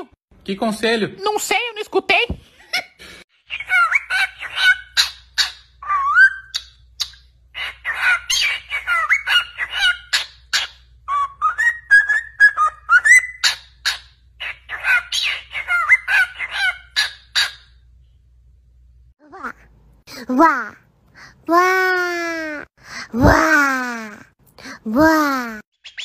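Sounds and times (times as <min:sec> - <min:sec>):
cockatiel chirping and whistling: 0:03.5 - 0:17.7, 0:25.8 - 0:26.0.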